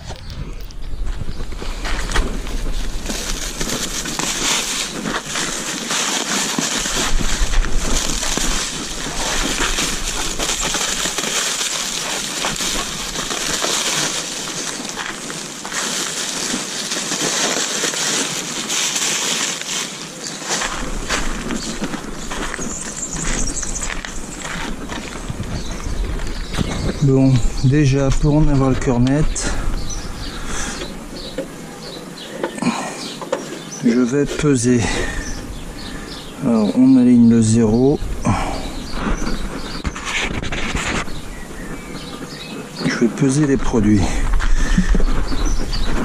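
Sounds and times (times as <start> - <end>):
plastic wrapping crinkling and rustling: 1.5 - 29.5.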